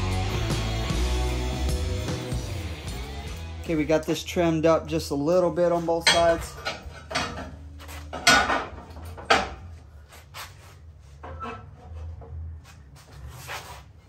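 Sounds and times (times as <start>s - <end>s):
metal scraping: 5.6s - 14.0s.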